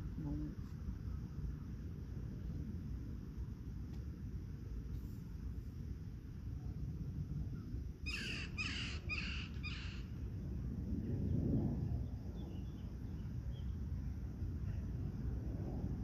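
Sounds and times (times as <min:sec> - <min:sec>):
low rumble: 0:09.6 - 0:16.0
small birds chirping: 0:12.1 - 0:14.2.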